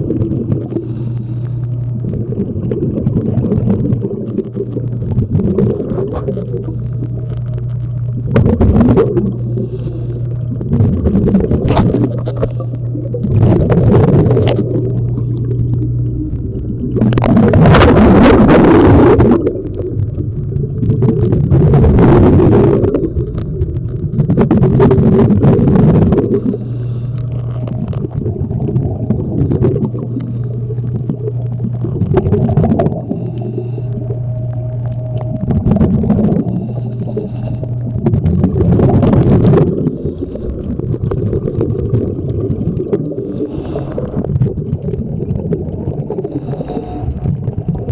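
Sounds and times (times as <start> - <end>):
steady low hum: 0.0 - 47.9
underwater exhaled bubbles: 0.0 - 47.9.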